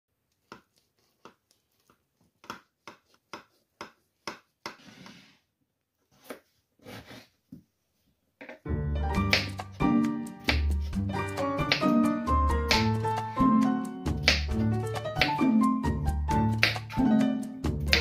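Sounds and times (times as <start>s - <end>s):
knife slicing scrape: 6.1s - 7.3s.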